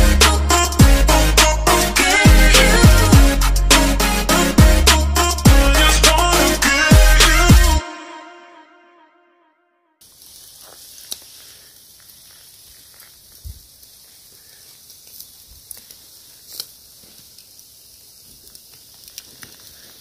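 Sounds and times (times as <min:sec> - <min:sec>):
crackles and pops: 0:10.0 - 0:20.0
food sizzling on grill: 0:10.0 - 0:20.0.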